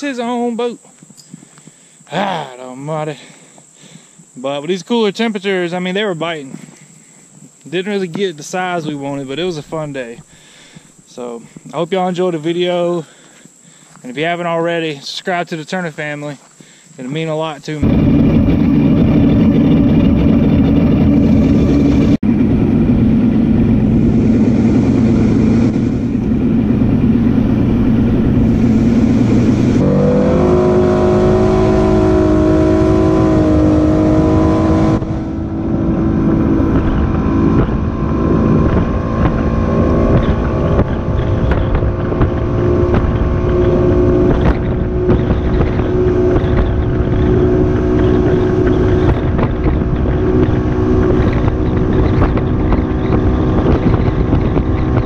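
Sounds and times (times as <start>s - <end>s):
outboard motor running: 17.8s - 55.0s.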